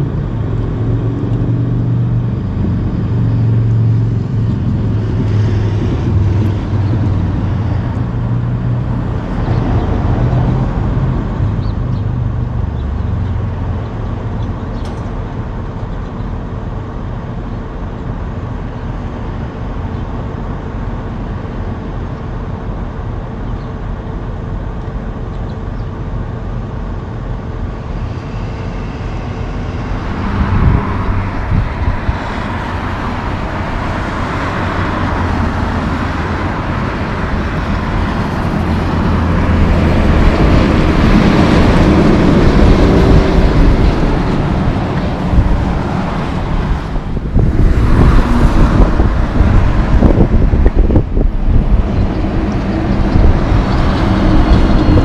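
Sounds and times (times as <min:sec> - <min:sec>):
highway traffic noise: 0:00.0 - 0:55.0
truck diesel engine running: 0:26.0 - 0:55.0.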